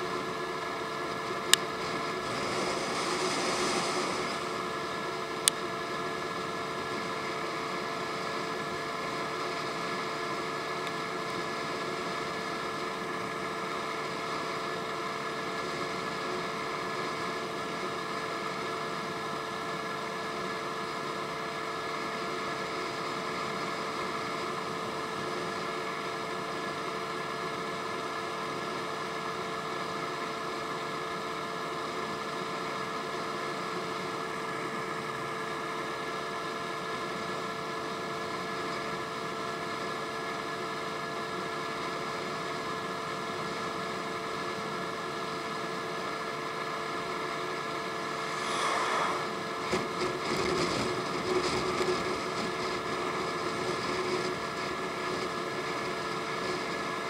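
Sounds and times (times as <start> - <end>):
steady rushing noise: 1.9 - 5.1, 47.8 - 51.2.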